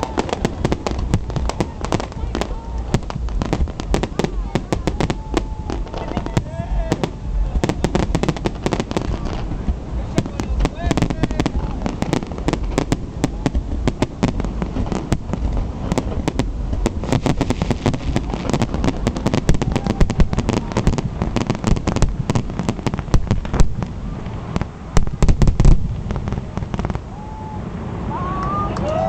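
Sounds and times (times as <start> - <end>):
fireworks bangs: 0.0 - 29.0
fireworks crackling and popping: 0.0 - 29.0.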